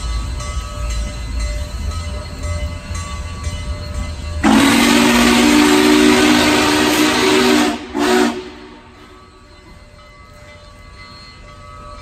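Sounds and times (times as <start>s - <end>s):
steam locomotive chime whistle: 0.0s - 12.0s
steam hissing: 4.4s - 9.8s.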